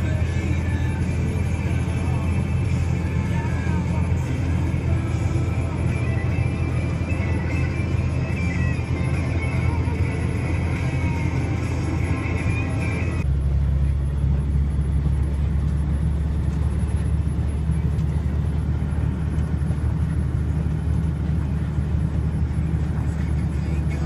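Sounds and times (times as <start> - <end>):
music from cab audio: 0.0 - 13.2
truck engine rumble from cab: 0.0 - 24.0.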